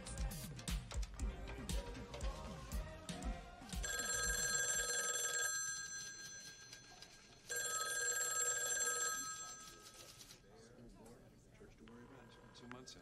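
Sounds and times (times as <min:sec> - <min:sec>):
background music with bass beat: 0:00.0 - 0:03.8
desk telephone ringing: 0:03.8 - 0:10.0.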